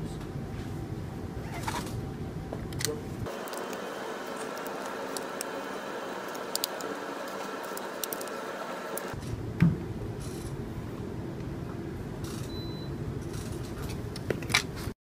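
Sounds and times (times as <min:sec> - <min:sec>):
room hiss: 0:03.2 - 0:09.2.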